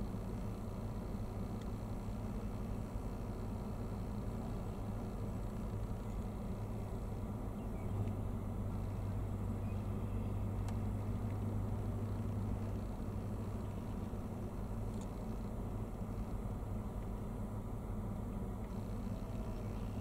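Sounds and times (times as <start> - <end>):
engine idling hum: 0.0 - 20.0
faint rumble: 0.0 - 20.0
faint tick: 1.6 - 1.8, 8.0 - 8.9, 10.6 - 11.5.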